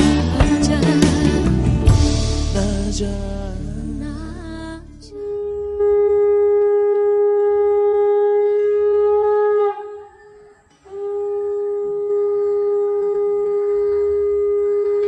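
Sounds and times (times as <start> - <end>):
horn-like blown notes: 4.5 - 15.0.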